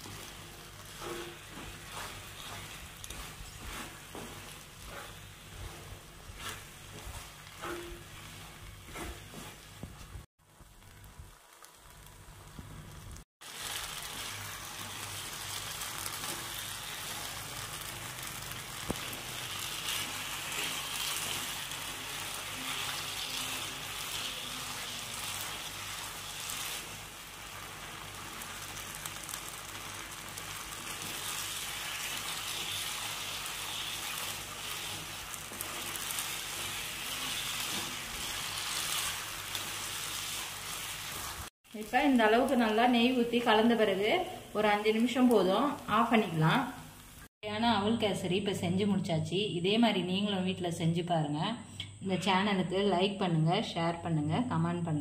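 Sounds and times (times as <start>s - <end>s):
wooden spatula stirring: 0.0s - 12.0s, 13.5s - 41.5s
food sizzling in a pan: 0.0s - 47.4s.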